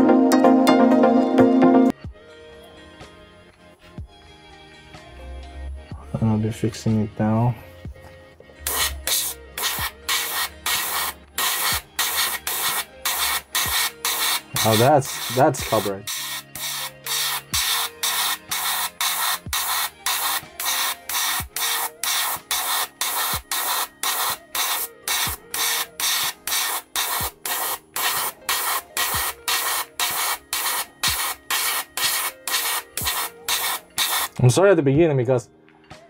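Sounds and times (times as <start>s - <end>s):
airbrush hissing in bursts: 8.6s - 34.4s.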